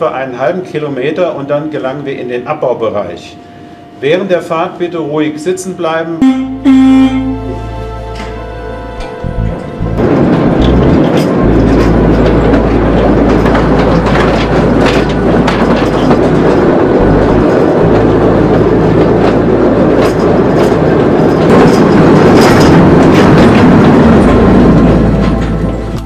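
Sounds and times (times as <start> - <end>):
train cars rumbling and rattling: 0.0 - 26.0
wheels clicking over rails: 9.0 - 26.0.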